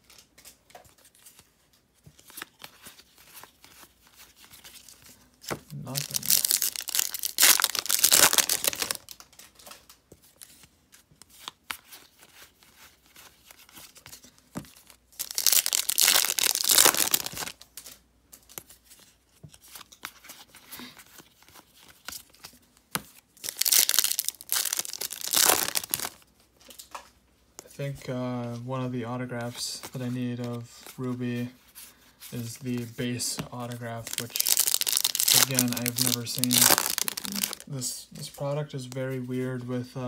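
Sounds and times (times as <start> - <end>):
wrappers torn and crinkled: 5.7 - 10.0, 14.9 - 17.9, 23.4 - 27.0, 33.6 - 37.7.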